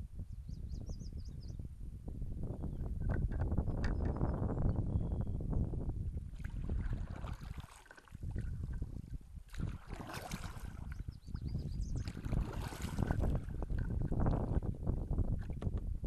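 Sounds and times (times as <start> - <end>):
wind rumbling on microphone: 0.0 - 16.0
paddle splashing into water: 6.3 - 8.5, 9.5 - 11.0, 12.0 - 14.1.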